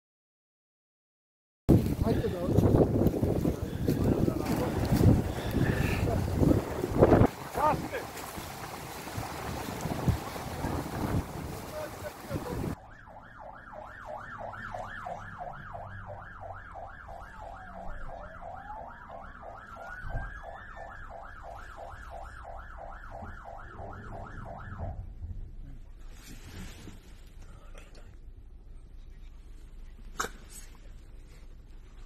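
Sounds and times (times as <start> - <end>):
police siren fast yelp: 12.7 - 25.1
slower siren tone gliding: 12.7 - 25.3.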